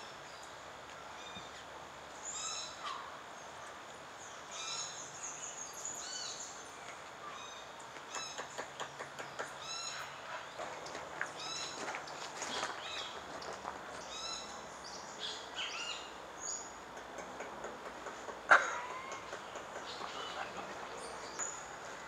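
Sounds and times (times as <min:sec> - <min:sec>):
faint forest background: 0:00.0 - 0:22.0
woodpecker tapping on trunk: 0:16.9 - 0:20.2.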